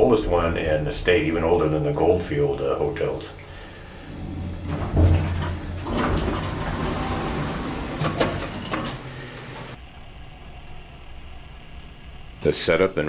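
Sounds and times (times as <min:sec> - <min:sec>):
elevator hum: 0:00.0 - 0:09.8
elevator doors sliding open: 0:03.2 - 0:09.8
elevator thump: 0:03.8 - 0:09.8.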